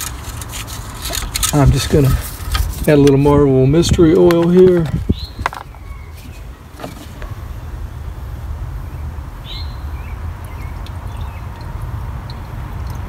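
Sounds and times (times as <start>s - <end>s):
bird chirping: 2.8s - 8.2s, 8.8s - 11.7s.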